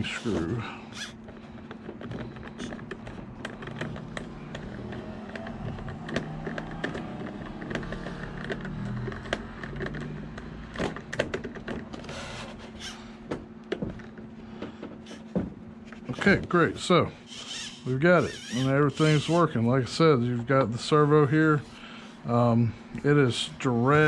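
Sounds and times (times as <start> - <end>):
faint steady hum: 8.4 - 24.0.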